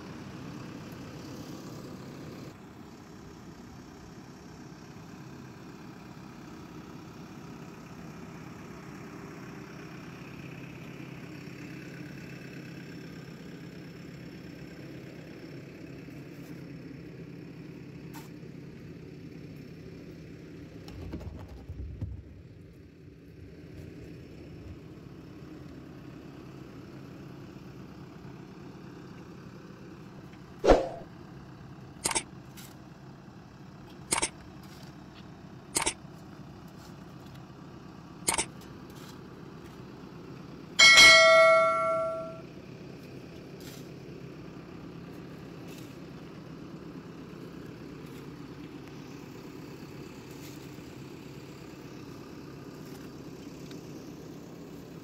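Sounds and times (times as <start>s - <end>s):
diesel engine idling: 0.0s - 20.9s, 22.4s - 55.0s
shovel clanging on steel bucket: 40.8s - 42.4s.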